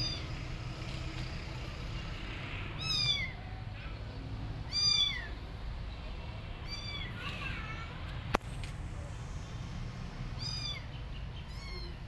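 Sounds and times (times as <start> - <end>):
kitten meowing: 2.8 - 3.4, 4.7 - 5.3, 6.6 - 7.7, 10.4 - 12.0.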